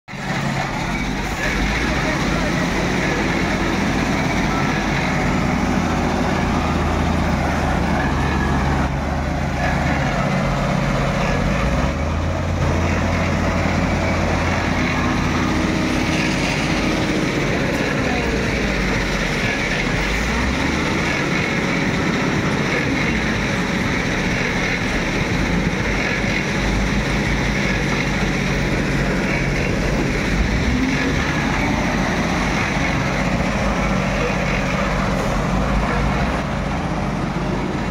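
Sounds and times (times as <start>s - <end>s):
wheel loader diesel engine: 0.0s - 37.9s.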